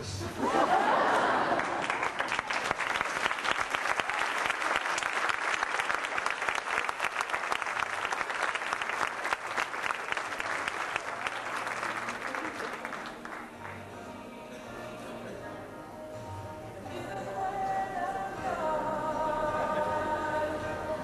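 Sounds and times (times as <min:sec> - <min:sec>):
crowd applauding: 0:00.7 - 0:13.9.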